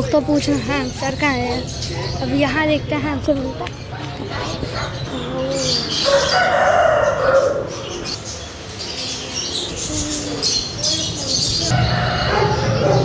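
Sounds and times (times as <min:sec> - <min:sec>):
rooster crowing: 0:06.0 - 0:07.8, 0:11.7 - 0:13.0.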